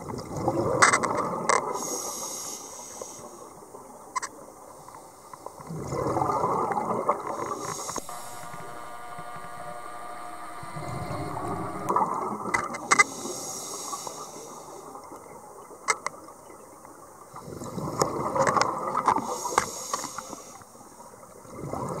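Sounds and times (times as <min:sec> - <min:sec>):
faint steady hum: 0:01.7 - 0:15.7
scuba regulator breathing: 0:01.8 - 0:03.4, 0:13.0 - 0:15.0.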